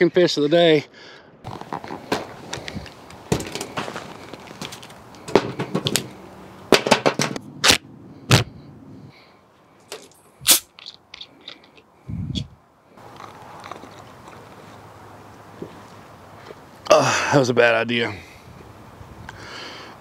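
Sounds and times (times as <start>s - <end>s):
soda bottle cap fizzing: 10.4s - 11.6s.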